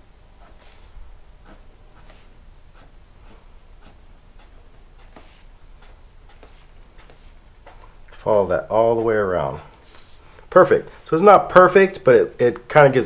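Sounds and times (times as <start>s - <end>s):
marker drawing strokes on paper: 0.4s - 10.4s.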